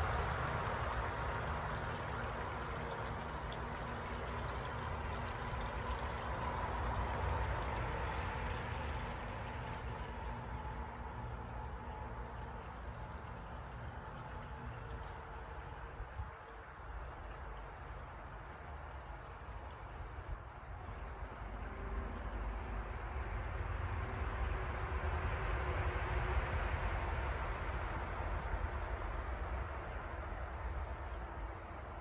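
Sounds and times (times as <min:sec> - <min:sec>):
high-pitched insect drone: 0:00.0 - 0:08.0.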